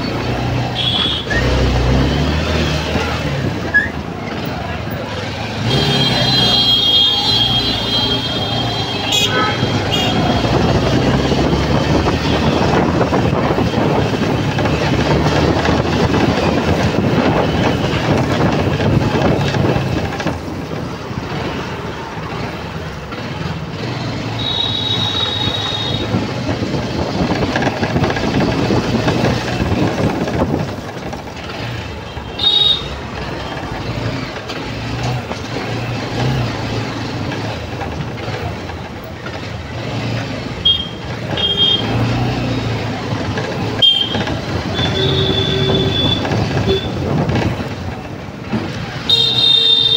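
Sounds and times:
road and wind noise: 0:00.0 - 0:49.9
motorcycle engine running: 0:24.4 - 0:49.9.

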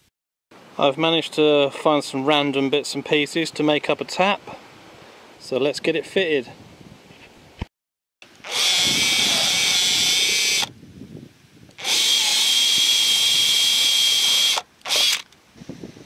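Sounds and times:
drill boring through plastic: 0:08.3 - 0:10.7, 0:11.7 - 0:15.3.

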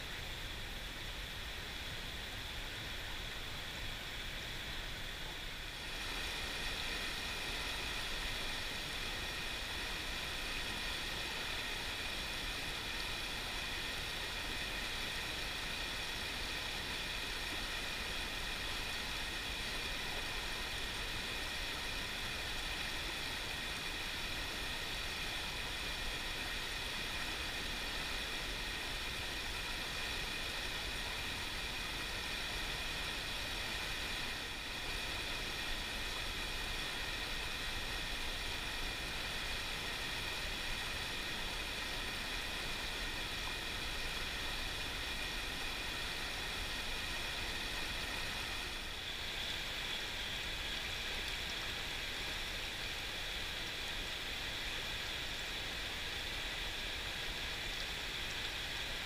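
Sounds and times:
stream rushing over rocks: 0:01.0 - 0:59.0.

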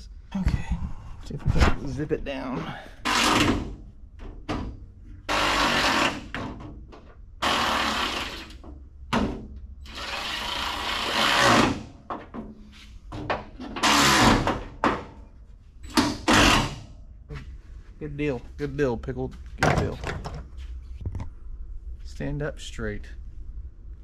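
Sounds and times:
power drill driving a screw: 0:05.3 - 0:06.3, 0:07.4 - 0:08.6, 0:09.8 - 0:11.8, 0:13.8 - 0:14.4, 0:16.3 - 0:16.8.

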